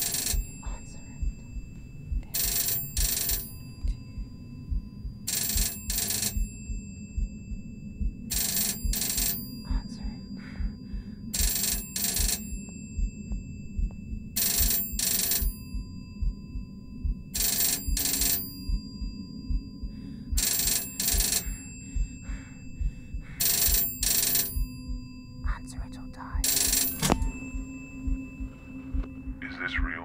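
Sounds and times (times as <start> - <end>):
telephone bell double ring: 0.0 - 0.6, 2.4 - 3.6, 5.3 - 6.6, 8.3 - 9.4, 14.4 - 15.5, 17.4 - 18.6, 23.4 - 24.6
faint low thumps: 0.0 - 3.0, 3.6 - 5.3, 13.0 - 18.0, 22.0 - 30.0
low rumble: 0.0 - 18.0.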